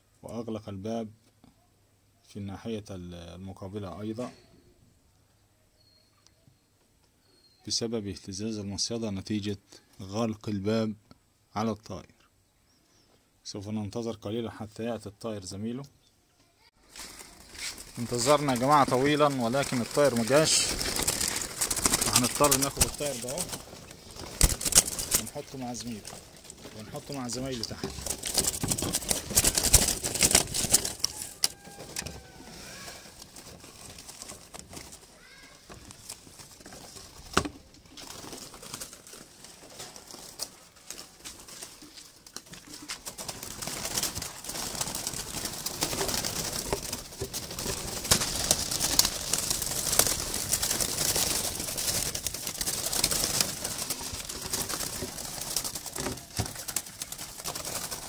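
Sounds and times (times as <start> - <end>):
doves calling: 16.8 - 58.0
wire cage rattling and scraping: 17.0 - 58.0.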